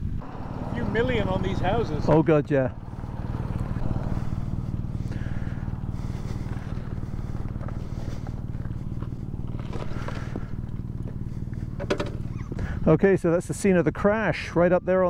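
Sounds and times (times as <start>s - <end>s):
motorcycle engine running: 0.0s - 13.2s.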